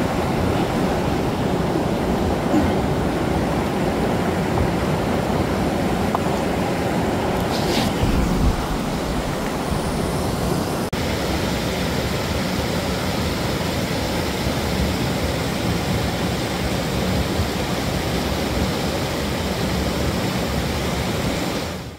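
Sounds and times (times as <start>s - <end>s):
water rushing into rock pool: 6.5s - 14.2s.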